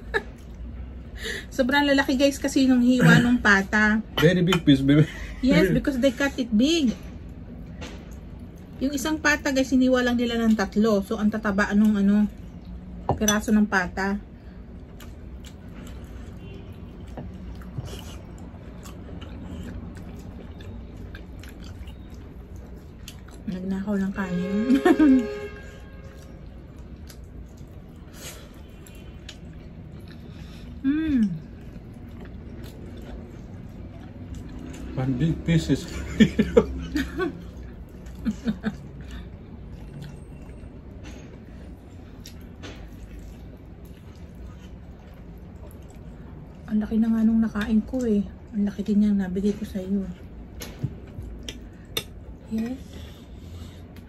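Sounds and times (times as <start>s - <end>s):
wet chewing and lip smacks: 14.8s - 23.6s, 26.2s - 30.5s, 42.1s - 46.6s, 50.4s - 52.2s.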